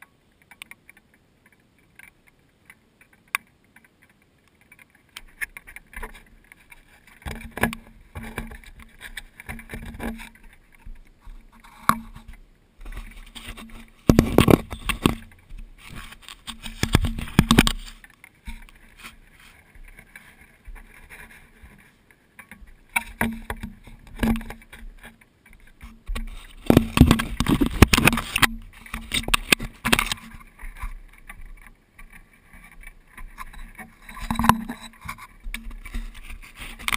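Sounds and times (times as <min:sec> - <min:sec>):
animals knocking against camera: 0:13.6 - 0:15.8.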